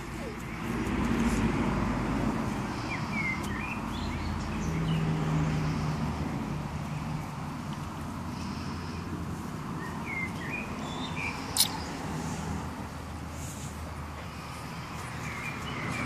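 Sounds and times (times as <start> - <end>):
low engine hum: 0.0 - 16.0
bird chirps: 9.8 - 11.9.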